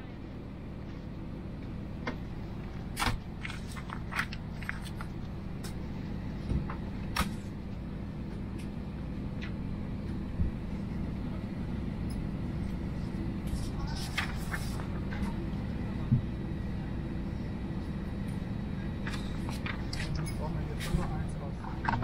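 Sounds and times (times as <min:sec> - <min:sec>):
airplane cabin hum: 0:00.0 - 0:22.0
paper rustling and clicks: 0:03.0 - 0:05.2, 0:13.9 - 0:15.4, 0:19.1 - 0:20.3.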